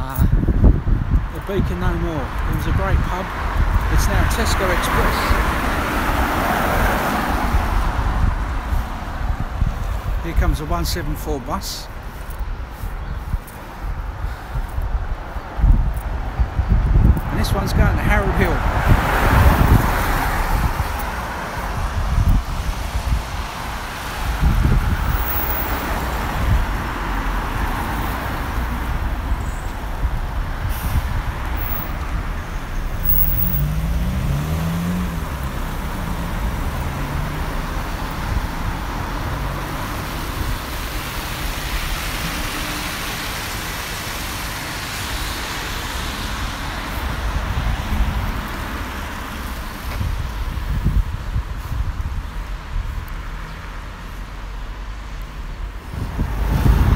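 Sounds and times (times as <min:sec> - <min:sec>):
passing cars hiss and rumble: 0:00.0 - 0:56.9
wind gusts on microphone: 0:00.0 - 0:56.9
bus engine passing: 0:18.2 - 0:49.8.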